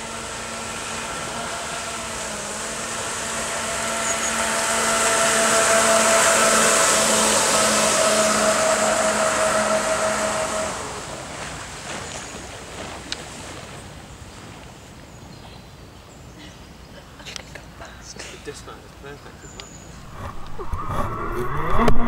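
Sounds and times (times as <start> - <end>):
jet drive whine: 0.0 - 11.8, 20.0 - 22.0
water spray hiss: 0.0 - 13.7.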